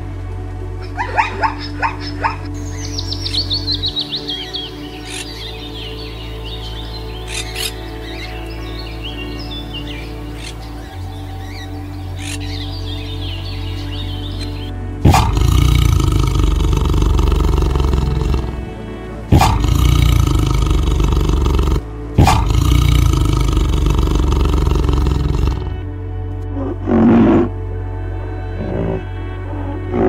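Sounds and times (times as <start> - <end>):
background music: 0.0 - 30.0
tiger low call: 14.4 - 25.9, 26.5 - 27.5
tiger roaring: 15.0 - 25.9, 26.5 - 27.5, 28.6 - 30.0.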